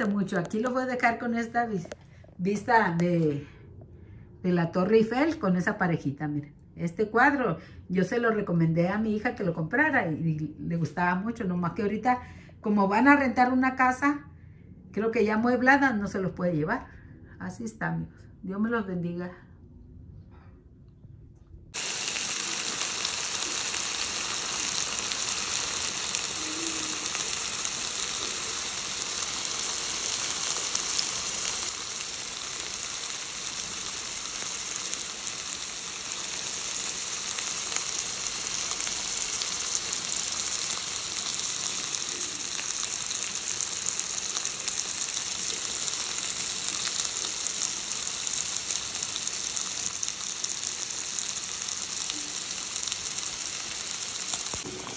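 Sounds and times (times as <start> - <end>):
food sizzling in oil: 21.8 - 54.9.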